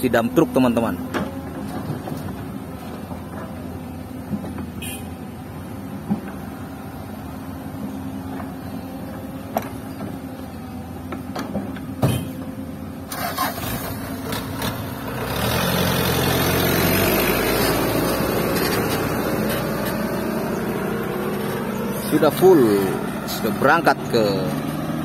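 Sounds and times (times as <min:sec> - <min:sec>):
diesel engines running: 0:00.0 - 0:25.0
truck engine pulling away: 0:13.0 - 0:25.0.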